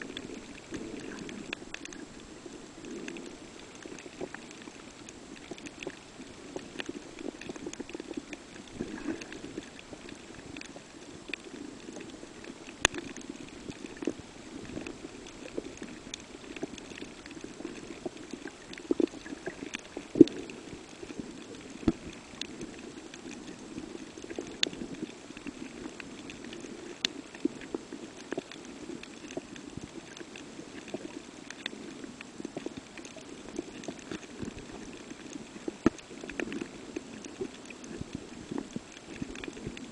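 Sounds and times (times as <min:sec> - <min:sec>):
muffled underwater rumble: 0:00.0 - 0:39.9
sharp clicks and pops: 0:12.0 - 0:23.3.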